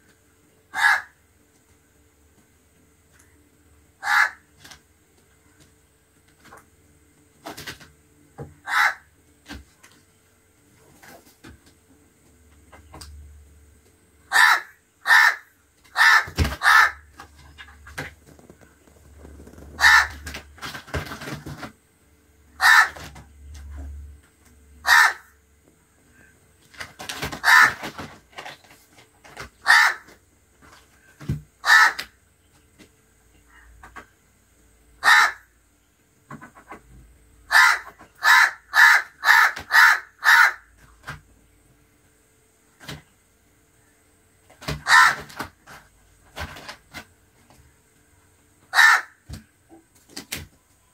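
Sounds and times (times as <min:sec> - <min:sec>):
crow cawing: 0:00.8 - 0:01.1, 0:04.0 - 0:04.4, 0:08.7 - 0:09.0, 0:14.3 - 0:15.4, 0:16.0 - 0:17.0, 0:19.8 - 0:20.2, 0:22.6 - 0:23.0, 0:24.8 - 0:25.3, 0:27.4 - 0:27.8, 0:29.7 - 0:30.0, 0:31.6 - 0:32.0, 0:35.0 - 0:35.4, 0:37.5 - 0:40.6, 0:44.8 - 0:45.3, 0:48.7 - 0:49.2.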